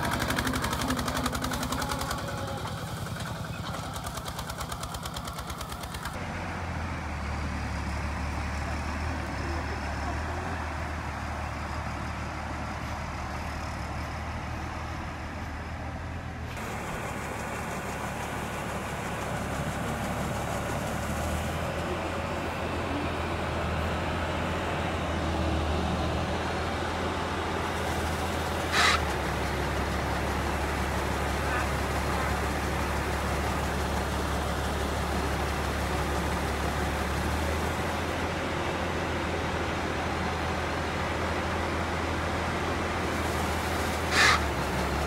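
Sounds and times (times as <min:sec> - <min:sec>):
grain auger unloading: 0:00.0 - 0:06.2, 0:25.1 - 0:38.0, 0:41.1 - 0:45.0
combine harvester engine running: 0:00.0 - 0:45.0.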